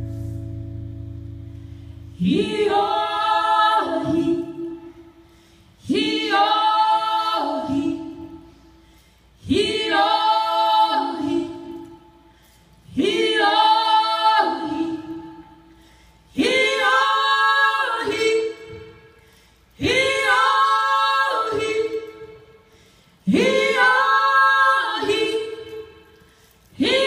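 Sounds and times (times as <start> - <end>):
women singing a chant: 2.2 - 5.2, 5.8 - 8.5, 9.4 - 12.2, 12.8 - 15.7, 16.3 - 19.2, 19.8 - 22.6, 23.2 - 27.0.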